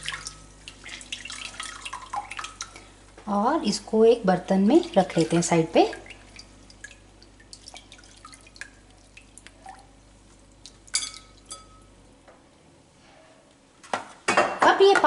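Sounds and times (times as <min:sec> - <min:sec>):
water dripping into a bowl: 0:00.0 - 0:02.9, 0:04.6 - 0:12.0
water plinks: 0:00.0 - 0:02.9, 0:04.5 - 0:11.9.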